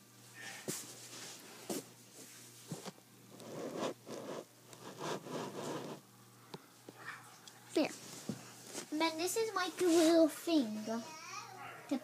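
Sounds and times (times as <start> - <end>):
plastic toys rustling and scraping: 9.8 - 10.3.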